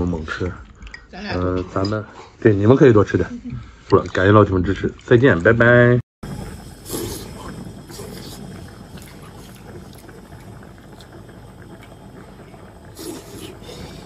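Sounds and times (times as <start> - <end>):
broth bubbling: 4.0 - 14.0
person slurping food: 6.8 - 10.2, 12.9 - 14.0.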